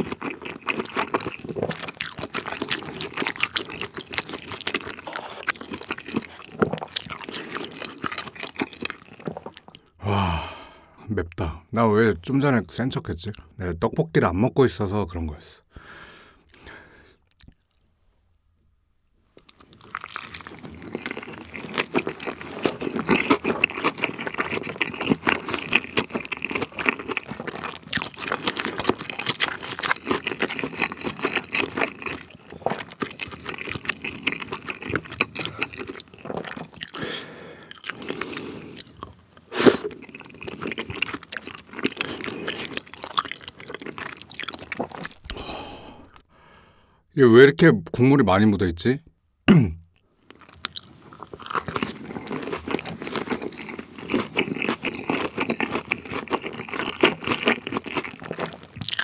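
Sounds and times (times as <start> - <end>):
close-miked chewing: 0.0 - 10.0, 19.4 - 46.2, 50.2 - 59.0.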